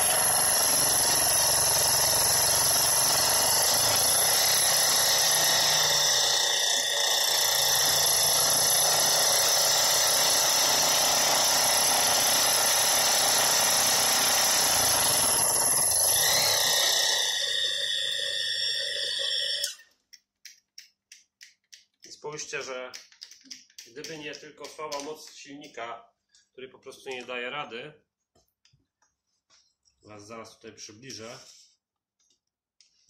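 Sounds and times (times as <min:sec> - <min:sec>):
milling machine cutting: 0:00.0 - 0:19.8.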